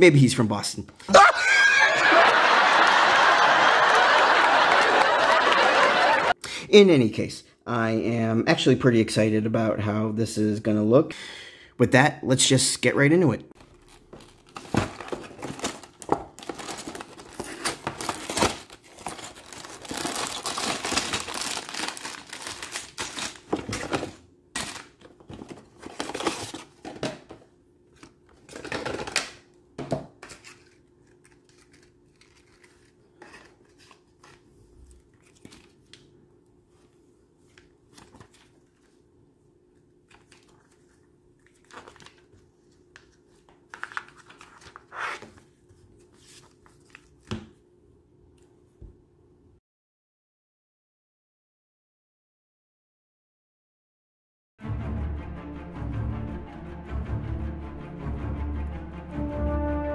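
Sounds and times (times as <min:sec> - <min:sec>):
cardboard tearing: 0:13.6 - 0:25.0
paper rustling: 0:13.6 - 0:27.0, 0:30.2 - 0:36.1, 0:36.7 - 0:39.1, 0:39.7 - 0:47.4
plastic bags and paper crinkling: 0:13.6 - 0:27.0, 0:30.3 - 0:36.0, 0:40.0 - 0:44.9.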